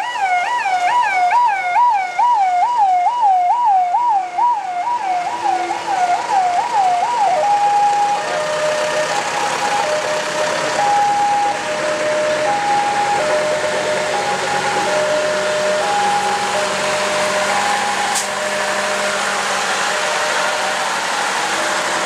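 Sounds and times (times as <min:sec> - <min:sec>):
siren sweeping down in pitch: 0:00.0 - 0:20.9
two-tone siren: 0:00.0 - 0:21.1.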